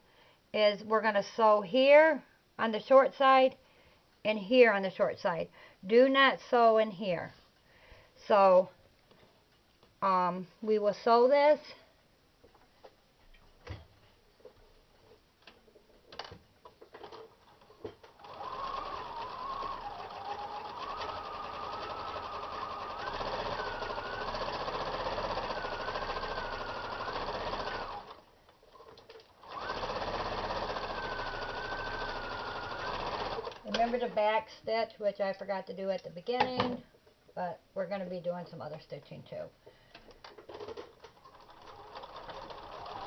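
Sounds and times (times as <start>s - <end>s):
sewing machine stitching: 17.1s - 28.2s, 28.8s - 34.0s, 40.5s - 43.0s.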